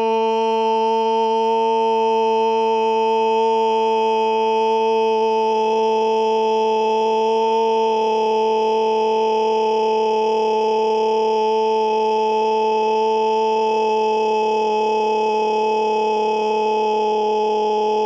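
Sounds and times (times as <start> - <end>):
loud steady scream: 9.9 - 18.0.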